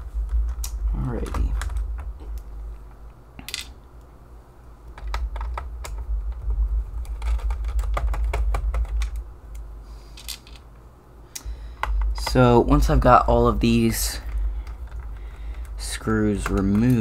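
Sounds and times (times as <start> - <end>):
low rumble: 0.0 - 3.3.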